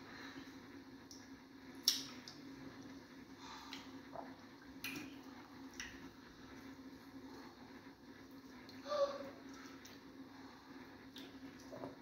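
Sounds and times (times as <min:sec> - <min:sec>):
faint steady hum: 0:00.0 - 0:12.0
soft squishing of food: 0:00.0 - 0:12.0
sharp wet smacks: 0:01.8 - 0:02.4, 0:04.8 - 0:06.0
wet eating sounds: 0:08.2 - 0:12.0.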